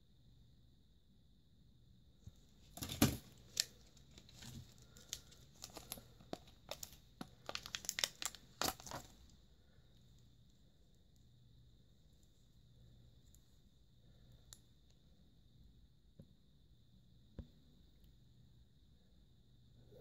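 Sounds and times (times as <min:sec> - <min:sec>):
plastic packaging crinkling: 0:02.7 - 0:09.3.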